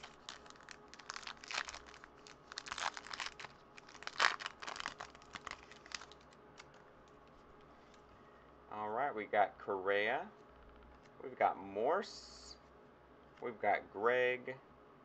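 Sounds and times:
wrapper tearing and crinkling: 0.0s - 6.8s.

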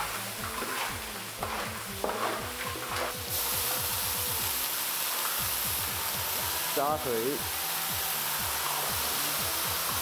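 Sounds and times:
metal spatula scraping wok: 0.0s - 3.3s
meat sizzling: 0.0s - 10.0s.

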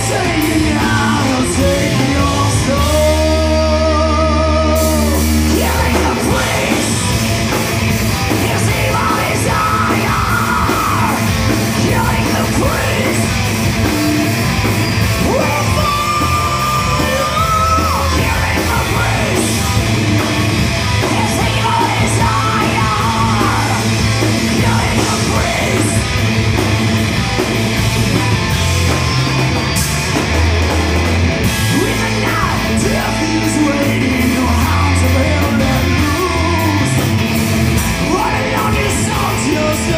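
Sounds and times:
drums: 0.0s - 39.9s
electric bass: 0.0s - 39.9s
electric guitar: 0.0s - 39.9s
person singing: 15.2s - 19.6s.

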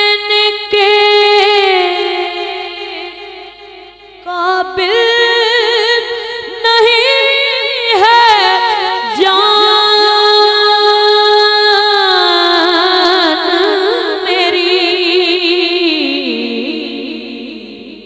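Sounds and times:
boy singing into a microphone: 0.0s - 18.0s.

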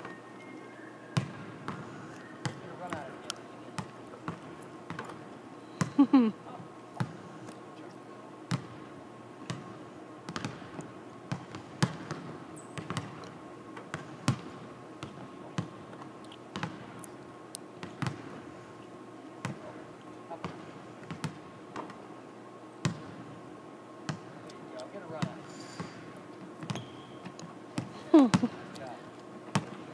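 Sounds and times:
ball hitting rim and backboard: 3.8s - 5.2s, 8.5s - 8.8s, 9.5s - 13.2s, 16.5s - 16.9s, 17.8s - 18.4s, 20.4s - 22.0s, 22.8s - 23.2s, 29.5s - 29.8s
shoe squeak: 26.7s - 27.3s.

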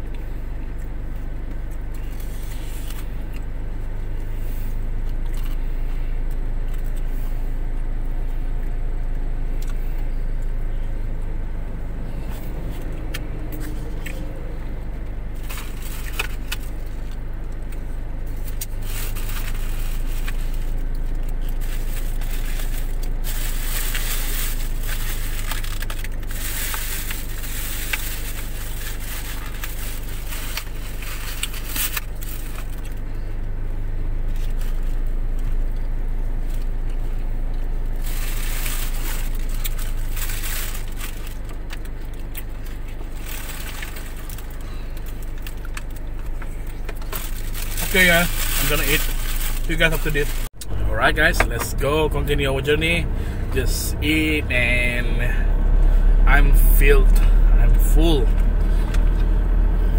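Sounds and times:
car engine hum inside cabin: 0.0s - 59.9s
plastic food packaging crackling: 18.4s - 33.0s, 38.0s - 50.5s.

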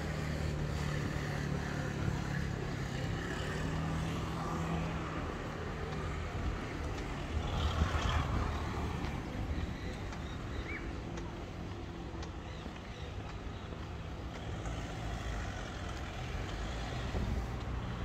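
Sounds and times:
vehicle passing: 0.0s - 12.8s
car engines running: 0.0s - 18.0s.

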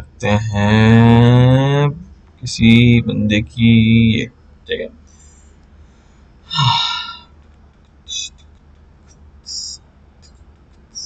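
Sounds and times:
man's low wordless vocal sound: 0.2s - 4.3s, 6.5s - 7.1s.

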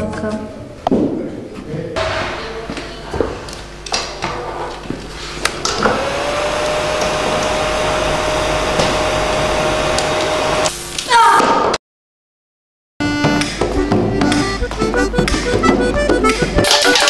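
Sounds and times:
hairdryer motor whine: 5.4s - 10.8s
hairdryer knocks: 5.7s - 10.4s.

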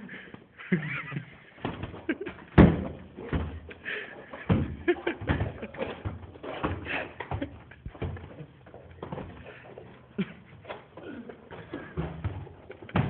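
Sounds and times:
people scuffling and hitting: 0.0s - 13.0s
bodies knocking against door: 1.6s - 3.7s, 4.4s - 8.4s, 11.6s - 13.0s.

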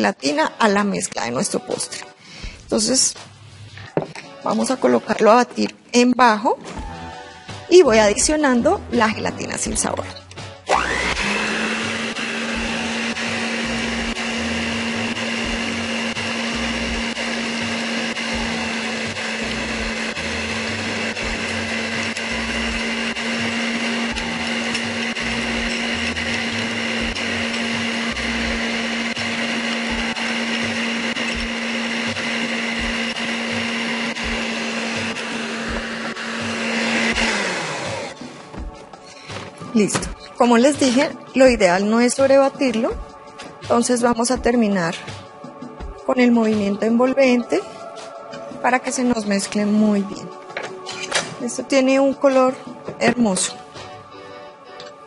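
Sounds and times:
electric stand mixer whirring: 10.7s - 38.3s.

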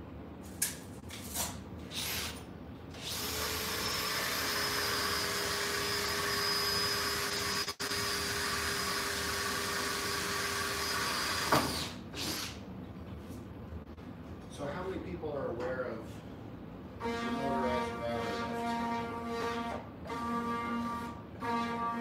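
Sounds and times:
small power tool motor whining: 3.0s - 12.6s.

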